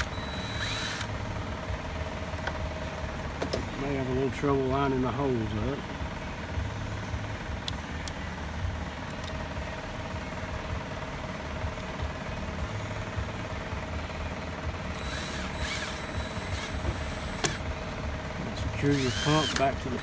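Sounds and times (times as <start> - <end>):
low machine drone: 0.0 - 20.0.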